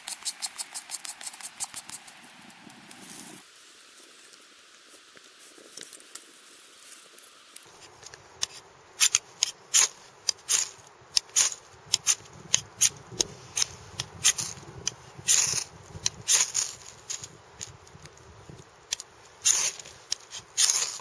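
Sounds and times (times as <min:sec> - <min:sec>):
knife scraping ferro rod: 0:07.7 - 0:21.0.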